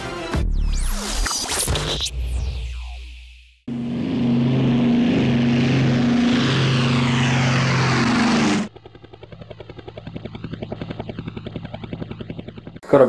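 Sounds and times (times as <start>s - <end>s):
low hum: 2.2s - 12.9s
sweeping whoosh: 3.7s - 8.7s
model helicopter rotor whirring: 3.7s - 12.8s.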